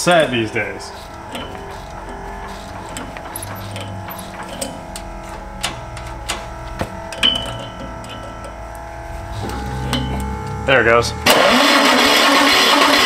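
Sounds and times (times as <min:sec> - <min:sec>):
guitar music: 0:00.0 - 0:12.5
sharp clicks and knocks: 0:01.2 - 0:10.3.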